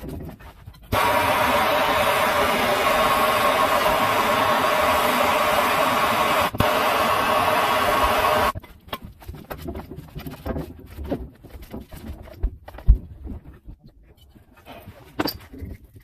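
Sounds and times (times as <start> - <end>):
gas torch flame hissing: 0.9 - 8.6.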